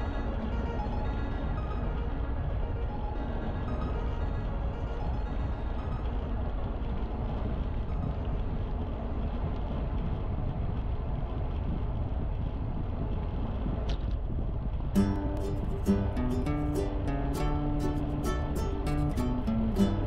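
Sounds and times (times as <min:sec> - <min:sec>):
wind on microphone: 0:00.0 - 0:19.9
bicycle rolling noise: 0:03.6 - 0:15.4.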